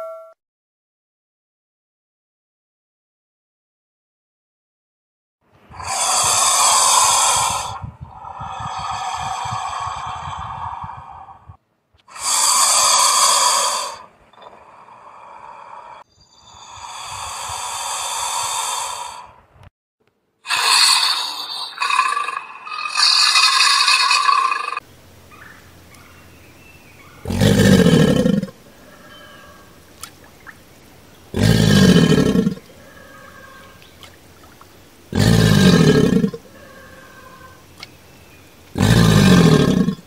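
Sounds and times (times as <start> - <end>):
alligator hissing: 5.7 - 11.5, 12.1 - 19.3, 20.5 - 24.8, 27.2 - 29.6, 31.3 - 33.8, 35.1 - 38.0, 38.7 - 40.0
alligator bellowing: 20.5 - 26.2, 27.0 - 29.8, 31.2 - 33.9, 35.1 - 37.8, 38.7 - 40.0.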